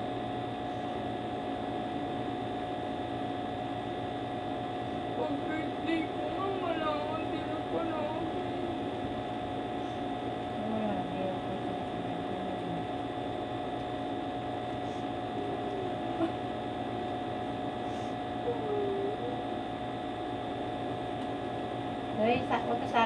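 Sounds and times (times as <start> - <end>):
steady electrical hum: 0.0 - 23.0
woman crying softly: 14.8 - 16.5, 17.9 - 19.4.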